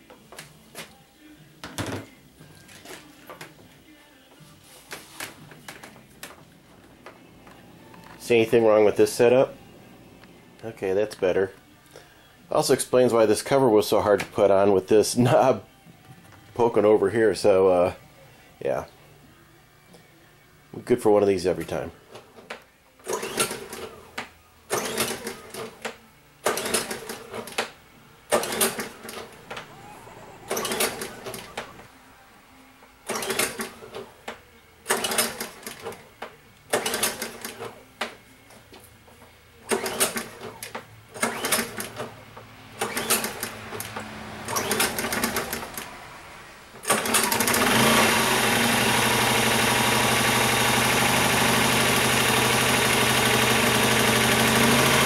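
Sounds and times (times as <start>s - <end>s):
recoil starter cord pulls: 28.3s - 29.6s, 46.8s - 55.0s
generator engine running: 47.1s - 55.0s.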